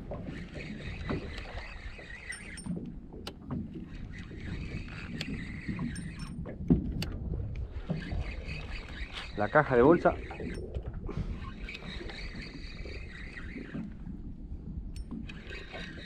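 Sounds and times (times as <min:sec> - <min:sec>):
water lapping against boat hull: 0:00.0 - 0:16.0
wind buffeting microphone: 0:00.0 - 0:16.0
fishing gear clicks and knocks: 0:01.1 - 0:03.9, 0:04.9 - 0:07.3.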